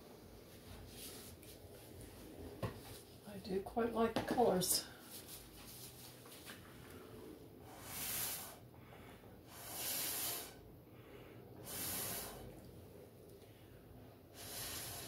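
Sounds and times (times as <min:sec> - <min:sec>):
person blowing breathy puffs: 0:07.6 - 0:08.6, 0:09.4 - 0:10.6, 0:11.6 - 0:12.5, 0:14.3 - 0:15.0.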